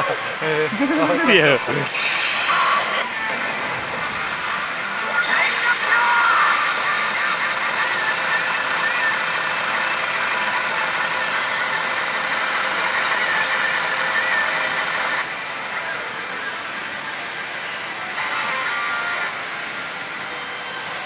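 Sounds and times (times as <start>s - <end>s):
pachinko machines electronic music: 0.0s - 15.2s.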